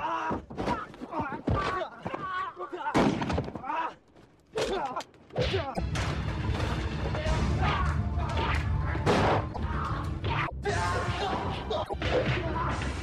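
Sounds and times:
action film music with low beat: 5.8 - 13.0
fight crashes and hits: 8.3 - 9.5.

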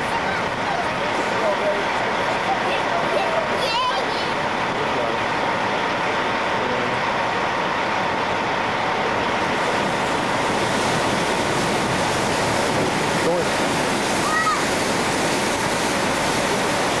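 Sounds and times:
water rushing against hull: 0.0 - 17.0.

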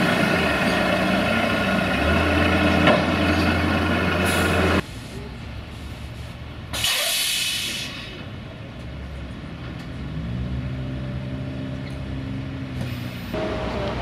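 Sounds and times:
truck diesel engine running: 0.0 - 4.8
compressed air hiss: 6.8 - 8.1.

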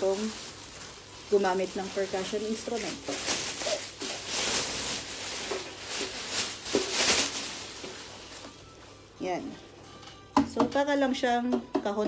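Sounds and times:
plastic wrapping rustling: 0.0 - 9.5.

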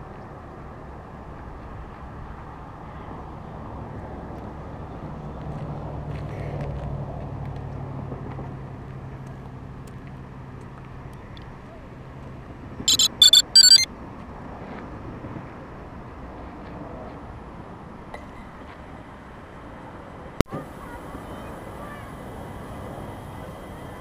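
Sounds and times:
short electronic beeps: 12.9 - 13.9.

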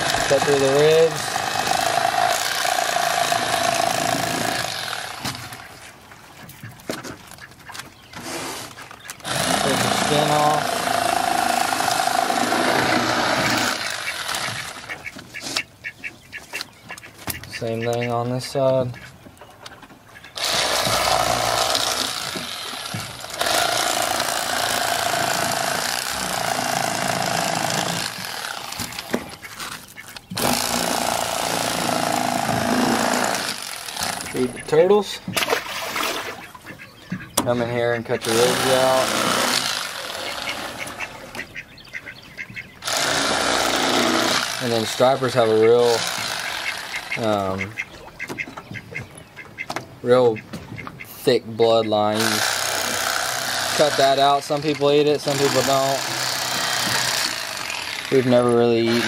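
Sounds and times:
electric fillet knife buzzing: 0.0 - 5.7, 9.2 - 15.0, 20.4 - 29.2, 30.4 - 34.6, 38.2 - 41.4, 42.8 - 47.3, 52.2 - 59.0.

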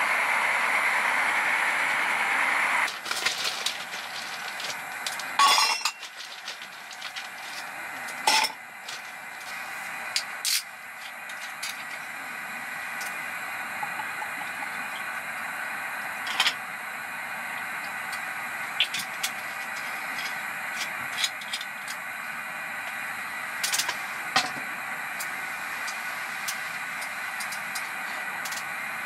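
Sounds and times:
heater hissing: 0.0 - 29.0
clinks of bottle and mug of ice: 5.4 - 6.0.

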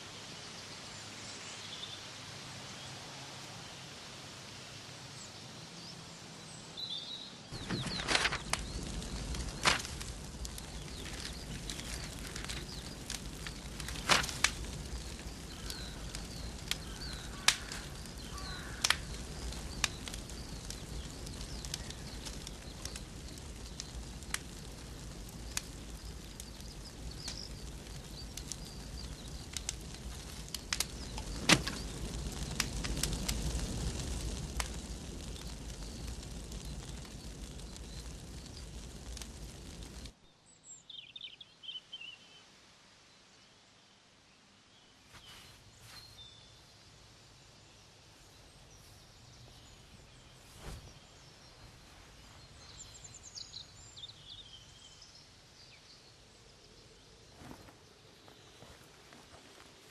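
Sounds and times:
birds chirping: 6.4 - 42.5
fire crackling and popping: 7.4 - 41.8, 45.1 - 59.9.

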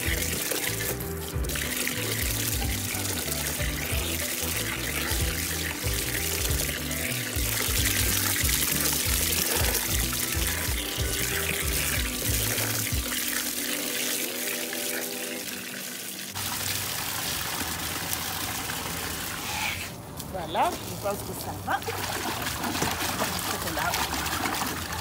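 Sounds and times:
background music with a beat: 0.0 - 13.5
hose water splashing into tub: 0.0 - 25.0.

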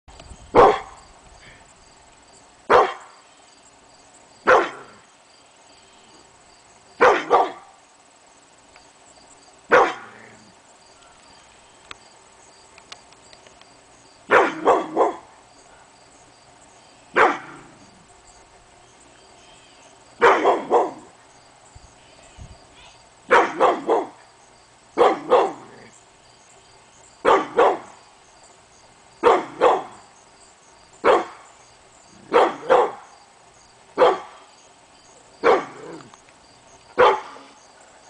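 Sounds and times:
dog barking deeply: 0.5 - 1.0, 2.7 - 3.0, 4.4 - 5.0, 7.0 - 7.7, 9.7 - 10.4, 14.3 - 15.3, 17.2 - 17.8, 20.2 - 21.1, 23.3 - 24.2, 25.0 - 25.9, 27.2 - 27.9, 29.2 - 30.0, 31.0 - 31.4, 32.2 - 33.1, 34.0 - 34.4, 35.4 - 36.1, 37.0 - 37.5.

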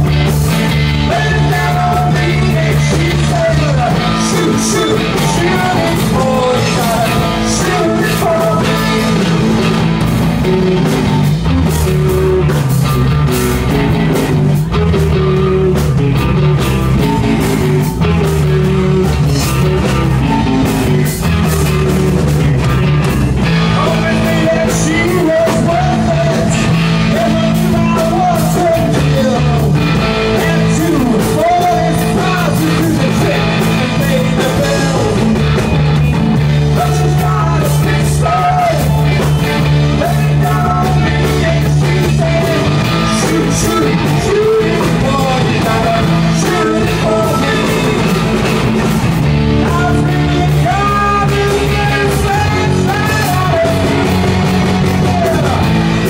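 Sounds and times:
bass guitar: 0.0 - 56.0
drum kit: 0.0 - 56.0
electric guitars: 0.0 - 56.0
man singing into a microphone: 0.9 - 9.9, 23.6 - 35.6, 36.5 - 49.0, 49.6 - 55.8.

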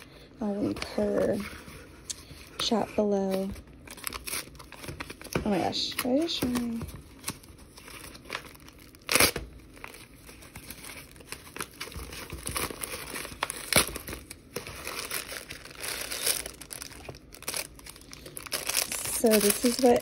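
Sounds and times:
paper crackling: 0.6 - 20.0
paper ripping: 3.3 - 20.0.

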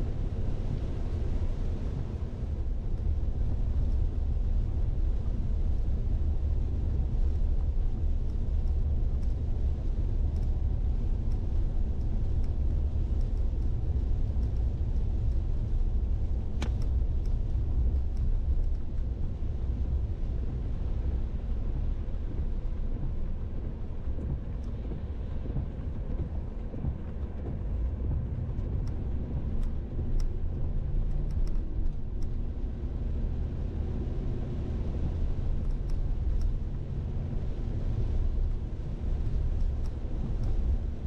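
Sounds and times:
steady low rumble: 0.0 - 41.0
faint ticks: 10.1 - 19.1, 22.4 - 32.8, 35.1 - 38.4, 39.1 - 41.0.

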